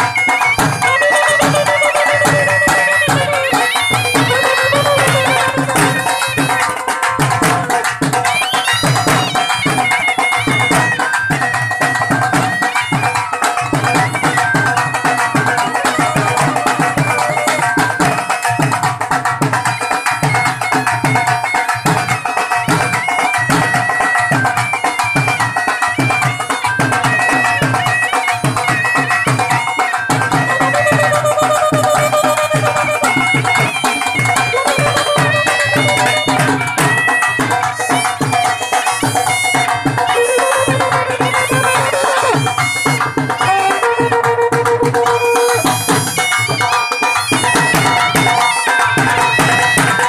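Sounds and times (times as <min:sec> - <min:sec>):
dhol drums beating: 0:00.0 - 0:50.0
wind instrument melody: 0:00.0 - 0:50.0.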